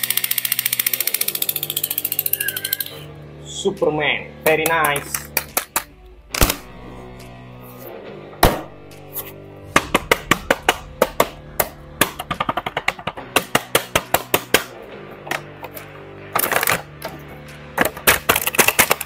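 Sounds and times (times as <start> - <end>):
plastic toys clicking and tapping: 0.0 - 3.0, 17.8 - 19.0
background music held notes: 0.0 - 19.0.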